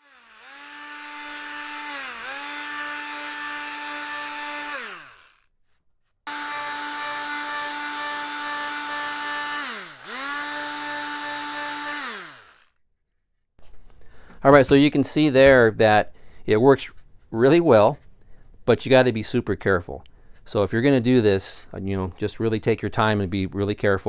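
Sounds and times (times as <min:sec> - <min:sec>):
oscillating multi-tool sanding: 0:00.0 - 0:05.4, 0:06.3 - 0:12.6.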